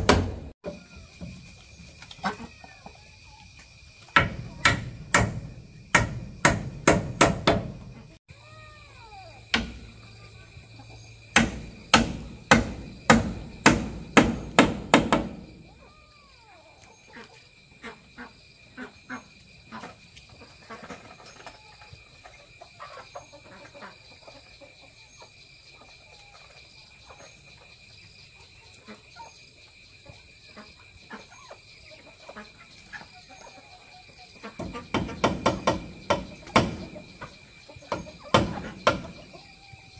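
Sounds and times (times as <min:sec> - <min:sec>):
hammer striking nail: 0:04.2 - 0:07.8, 0:11.4 - 0:15.4, 0:34.6 - 0:36.8.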